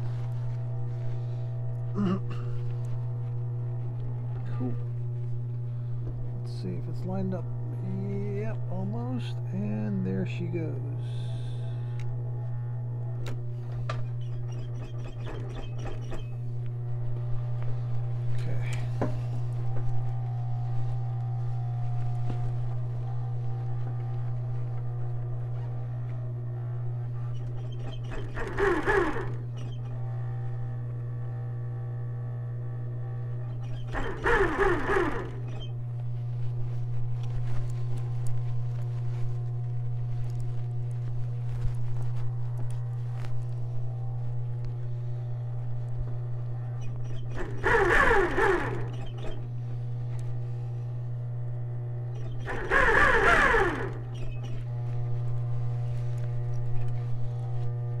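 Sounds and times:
steady low hum: 0.0s - 58.0s
sewing machine stitching: 13.9s - 16.4s, 27.3s - 30.0s, 33.4s - 35.7s, 46.8s - 49.5s, 52.2s - 54.7s.

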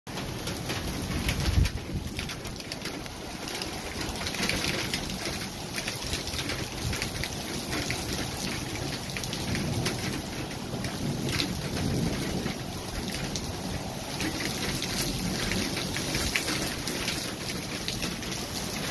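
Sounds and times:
gusty wind buffeting microphone: 0.4s - 3.5s.

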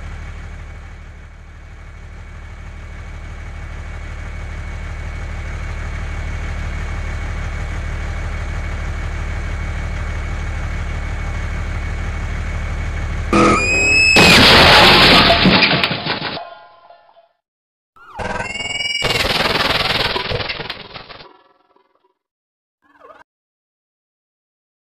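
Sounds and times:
truck engine rumbling: 0.0s - 15.6s
short sweeping tone: 13.3s - 14.2s
loud noisy burst: 13.3s - 15.8s, 18.4s - 21.0s.

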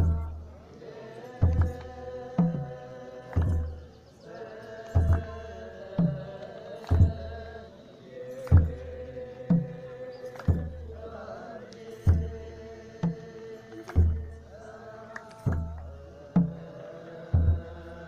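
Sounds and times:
deep drum beats: 0.0s - 0.4s, 1.4s - 3.9s, 4.8s - 7.5s, 8.5s - 11.1s, 12.0s - 14.6s, 15.3s - 16.7s, 17.3s - 18.0s
men chanting: 0.0s - 18.0s.

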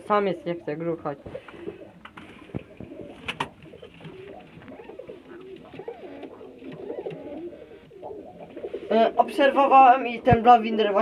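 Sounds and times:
pigeons cooing: 0.0s - 10.4s.

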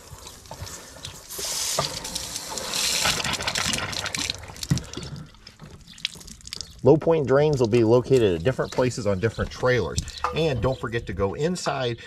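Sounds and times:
water gushing onto concrete: 0.0s - 8.3s.

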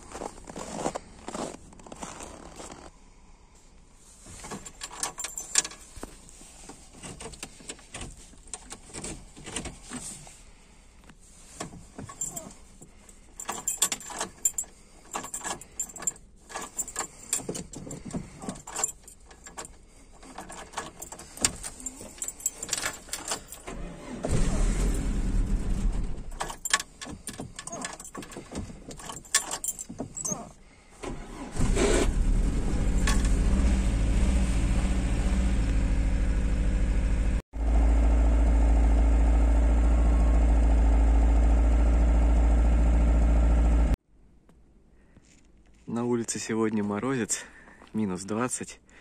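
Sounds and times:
light metallic clicks and jangling: 4.4s - 9.8s, 11.6s - 23.9s, 26.3s - 30.6s.

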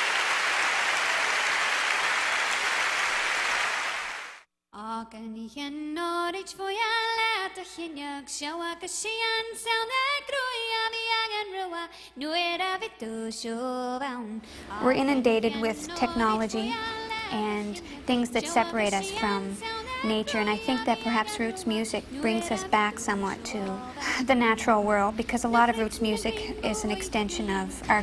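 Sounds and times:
audience applause: 0.0s - 4.4s
woman singing unaccompanied: 4.8s - 28.0s.

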